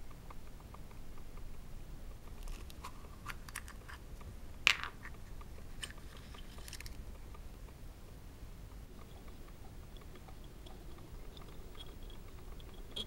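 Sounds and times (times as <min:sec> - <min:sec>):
packet crinkling: 0:02.4 - 0:04.0, 0:05.7 - 0:07.0
plastic capsule snapping open: 0:02.4 - 0:04.0
plastic clicks: 0:02.4 - 0:04.0.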